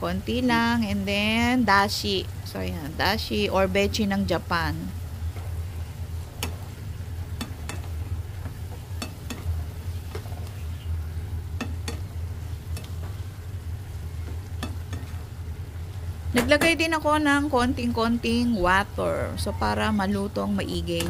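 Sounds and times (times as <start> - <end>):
food sizzling: 0.0 - 21.0
steady low hum: 0.0 - 21.0
spatula clicking against pan: 9.0 - 9.5, 11.6 - 12.1.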